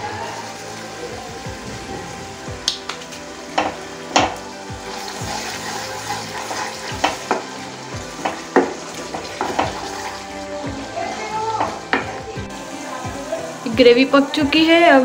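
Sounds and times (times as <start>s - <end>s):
gravy sizzling: 0.0s - 15.0s
spatula knocking against pan: 3.6s - 4.4s, 6.9s - 7.5s, 8.2s - 9.9s.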